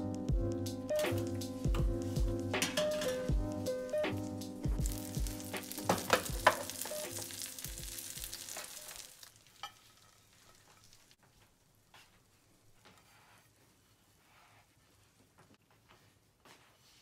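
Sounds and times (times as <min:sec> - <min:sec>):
soft background music: 0:00.0 - 0:09.1
baking tray sizzling and crackling: 0:04.8 - 0:11.3.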